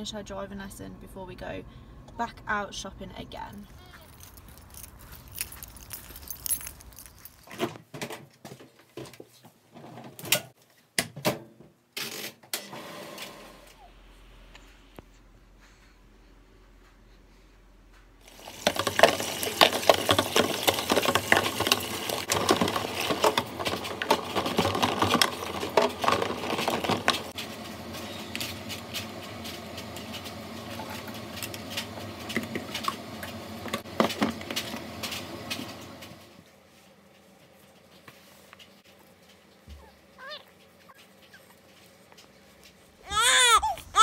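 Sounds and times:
plastic bottle parts clattering: 18.2s - 27.3s.

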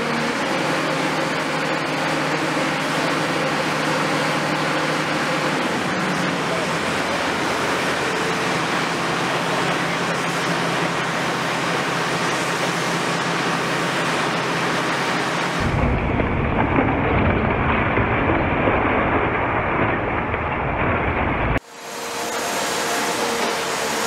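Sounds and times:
excavator crusher breaking concrete: 0.0s - 21.6s
deep rumble: 15.6s - 21.6s.

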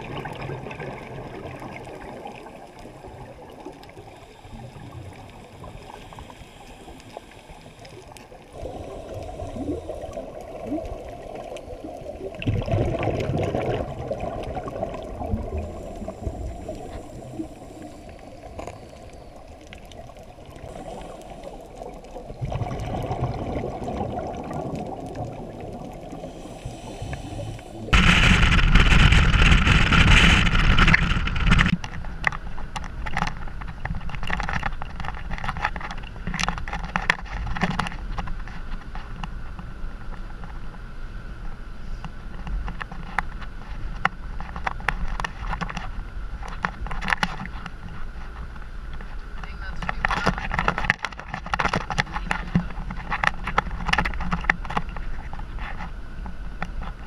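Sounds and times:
gurgling exhaled bubbles: 0.0s - 31.7s
underwater regulator inhalations: 3.9s - 10.7s, 15.3s - 22.6s, 25.8s - 28.5s.

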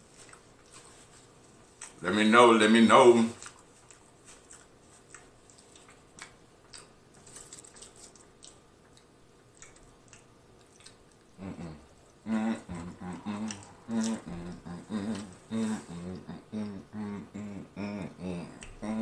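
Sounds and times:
person chewing food: 0.0s - 2.0s, 3.2s - 19.0s
wordless vocal sounds: 11.4s - 19.0s.

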